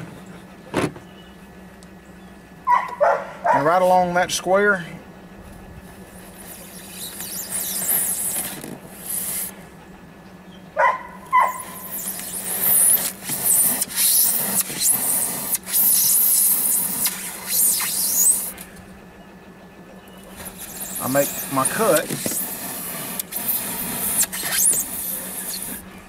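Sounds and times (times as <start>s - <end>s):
knife sawing through styrofoam: 6.2s - 9.6s, 11.4s - 18.6s, 20.3s - 25.9s.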